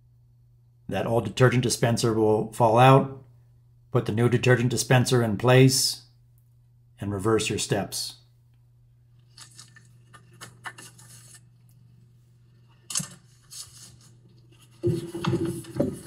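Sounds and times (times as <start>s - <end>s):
hands clicking and rustling plastic: 9.2s - 11.4s.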